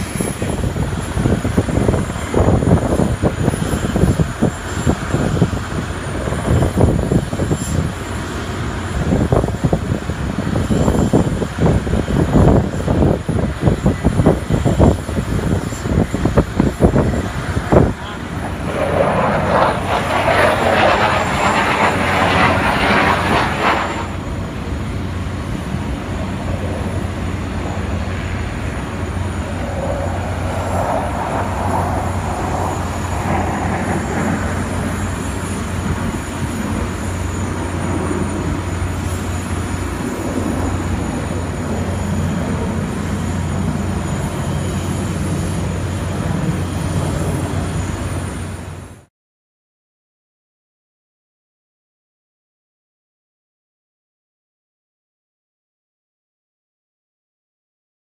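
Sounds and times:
fighter jet engines roaring: 0.0s - 49.1s.

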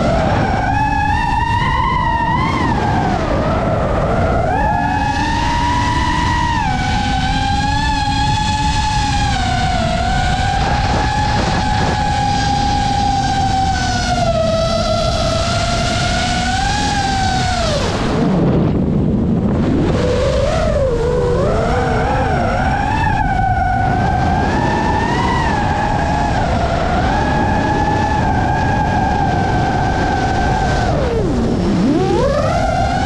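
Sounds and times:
drone motors whining: 0.0s - 33.0s.

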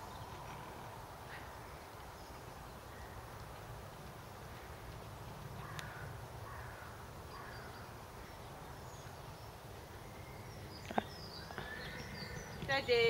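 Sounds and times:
faint bird chirps: 5.6s - 13.0s.

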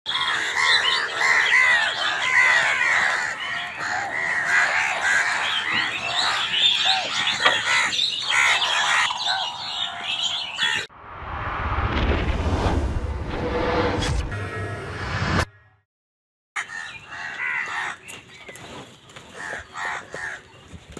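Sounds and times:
crows cawing: 0.1s - 10.9s, 16.6s - 18.5s, 19.2s - 20.6s.

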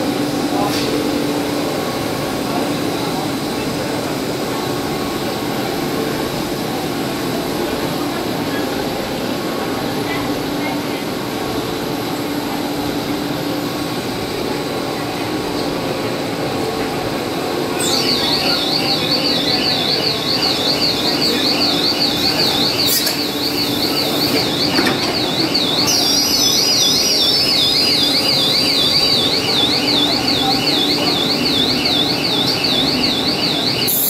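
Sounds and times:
machinery hum: 0.0s - 34.0s
warbling electronic alarm: 17.1s - 34.0s.

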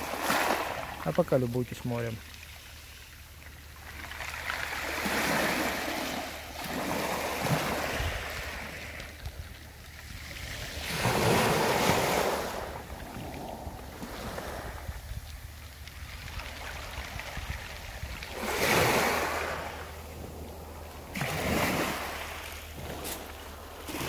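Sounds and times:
water draining through stones: 0.0s - 11.3s
sea waves on pebble beach: 0.0s - 24.0s.

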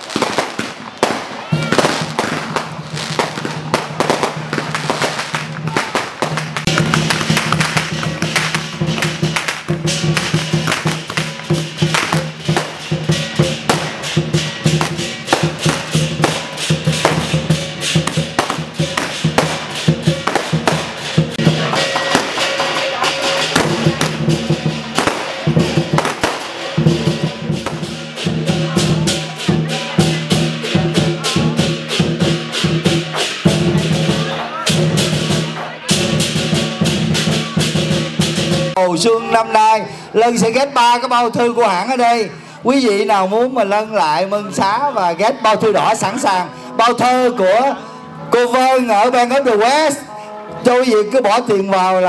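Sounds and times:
cymbals crashing: 0.0s - 40.0s
drum beating fast: 0.0s - 42.0s.

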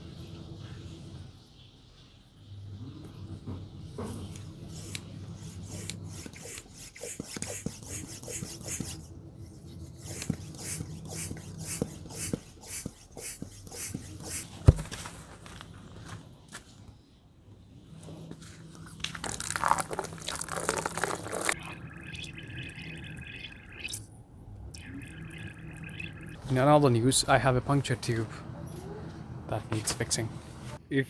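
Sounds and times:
hand pump inflating tube: 5.6s - 9.0s, 10.0s - 14.5s
water sloshing and dripping: 19.1s - 26.6s.

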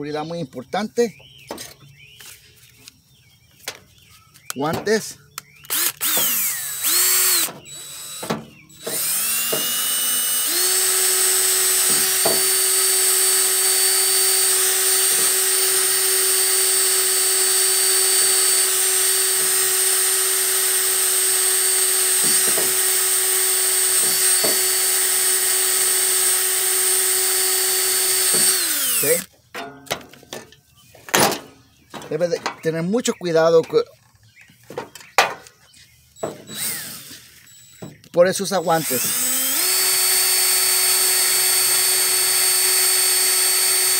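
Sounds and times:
cordless drill with wire brush: 5.6s - 29.3s, 36.2s - 43.9s.

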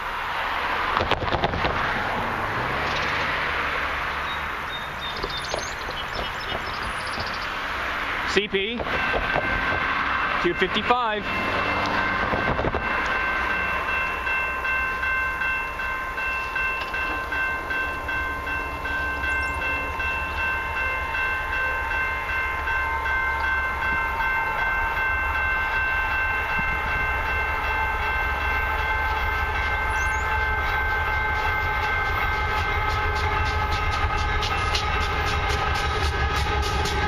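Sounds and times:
locomotive air horn chord: 27.6s - 37.0s.

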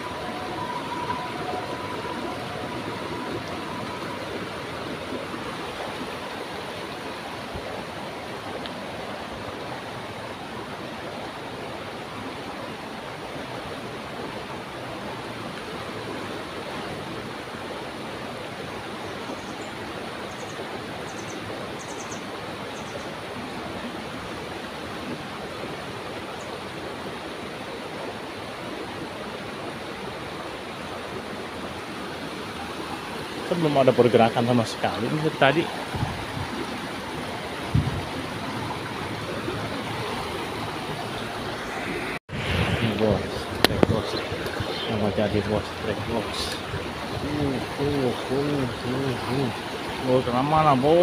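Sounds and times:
stream rushing: 0.0s - 51.0s.

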